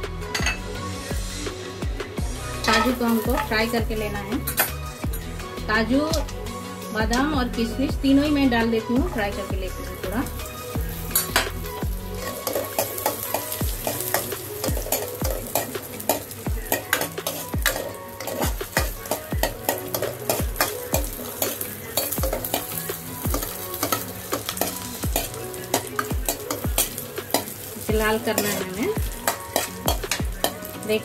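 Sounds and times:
light sizzle of frying: 2.4 - 31.0
spatula scraping and tapping pan: 11.0 - 30.9.

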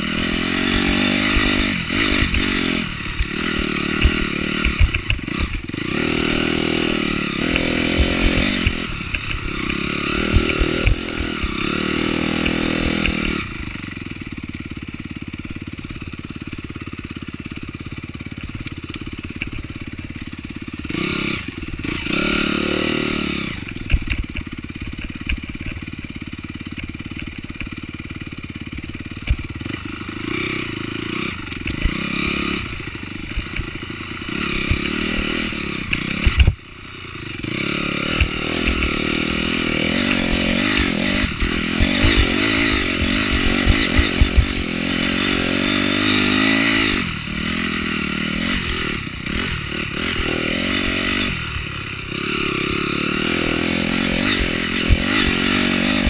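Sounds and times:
dirt bike engine revving: 0.0 - 56.0
bike knocks and rattles: 0.4 - 6.1, 39.8 - 45.6.

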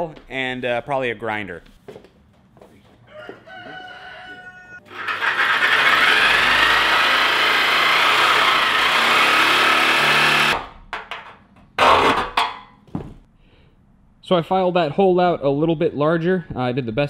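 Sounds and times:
power tool cutting steel: 4.9 - 10.6.

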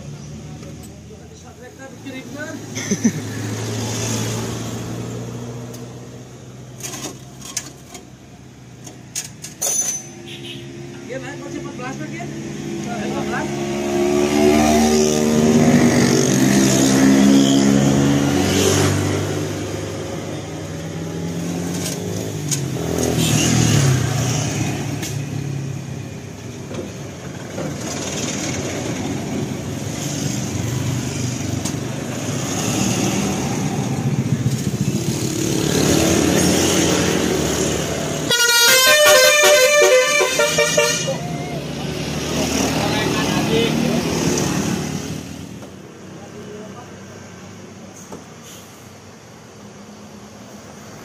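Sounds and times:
road traffic passing: 0.0 - 51.0
vehicle horn honking: 10.2 - 10.7, 38.3 - 41.2.

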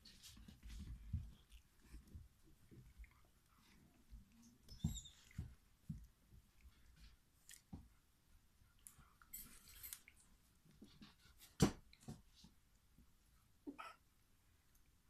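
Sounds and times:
dogs rustling on a blanket: 0.0 - 8.0.

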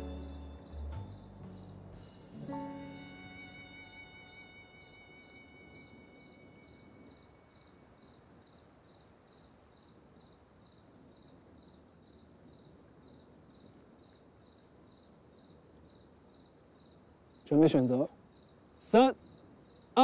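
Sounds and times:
held music note: 0.0 - 6.1
background hiss: 0.0 - 20.0
cricket chirping: 0.0 - 20.0.

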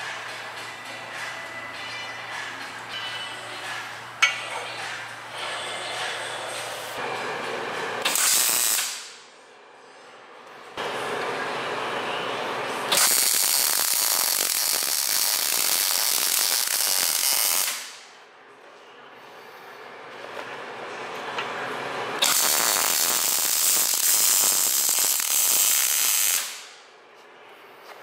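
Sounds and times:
welding arc crackling: 8.0 - 9.1, 12.9 - 18.0, 22.2 - 26.8.

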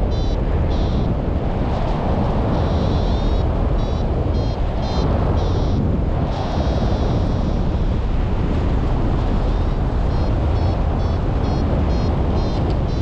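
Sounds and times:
wind rushing on microphone: 0.0 - 13.0
variometer high beeps: 0.1 - 1.1, 2.5 - 5.8, 6.6 - 7.6, 10.1 - 13.0.

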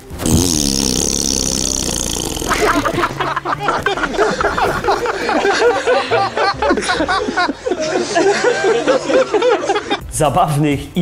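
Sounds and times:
snickering laughter: 2.2 - 10.0.

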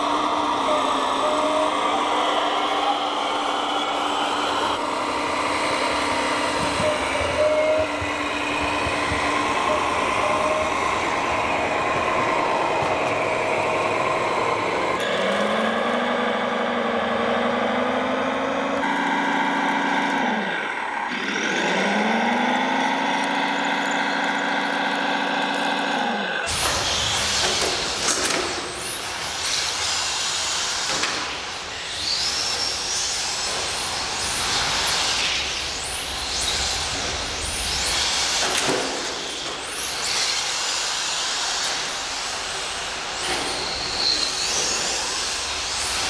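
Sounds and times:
model diesel engine revving: 0.0 - 27.0
high whine: 0.0 - 29.6.

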